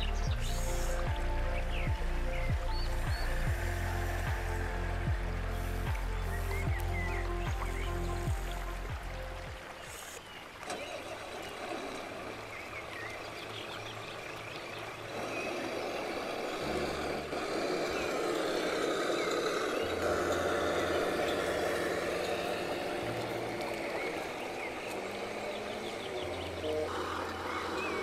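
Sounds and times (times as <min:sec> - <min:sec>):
birds chirping faintly: 0:00.0 - 0:28.0
toy truck engine drone: 0:15.1 - 0:28.0.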